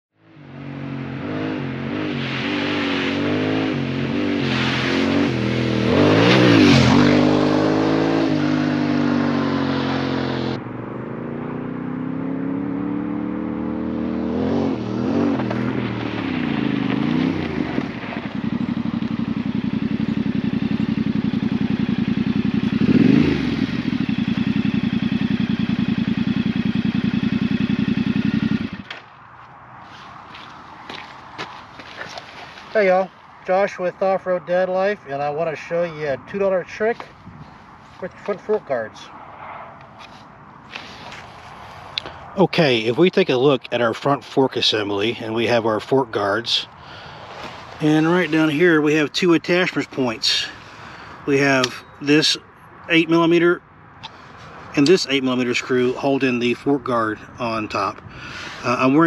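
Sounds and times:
motorcycle engine revving: 0.2 - 31.4.

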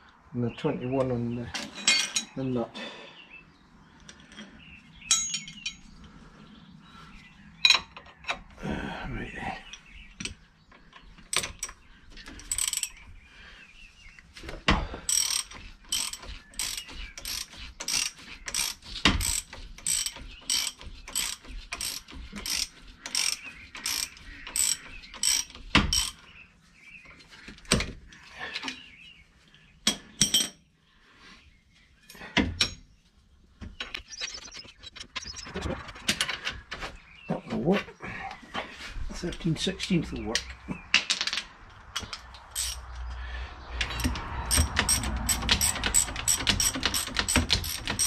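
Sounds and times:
metal clanks: 5.1 - 5.9
ratchet clicking: 15.1 - 26.2, 43.8 - 48.0.

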